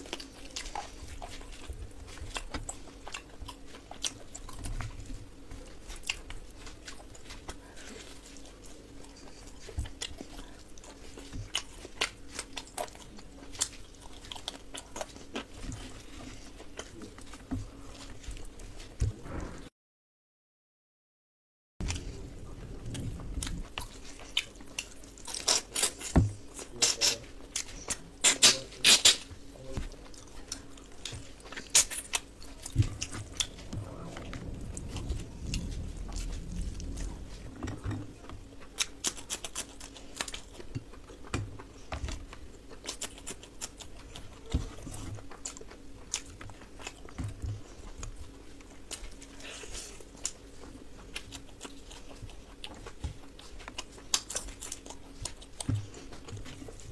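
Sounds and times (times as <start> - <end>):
wet chewing and lip smacks: 45.0 - 56.9.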